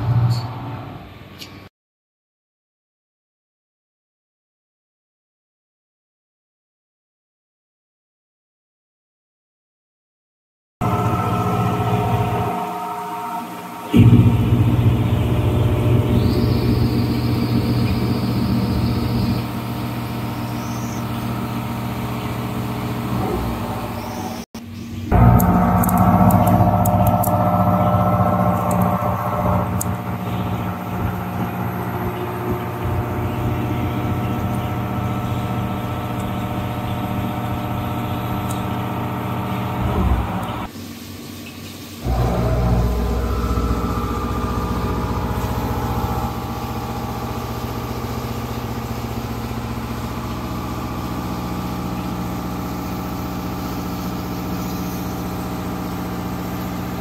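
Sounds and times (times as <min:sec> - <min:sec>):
milling machine spindle humming: 0:10.8 - 0:24.4, 0:25.1 - 0:40.7, 0:42.1 - 0:57.0.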